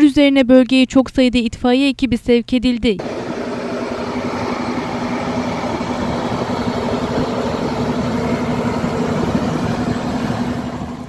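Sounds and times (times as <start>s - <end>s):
truck engine running: 3.0s - 11.0s.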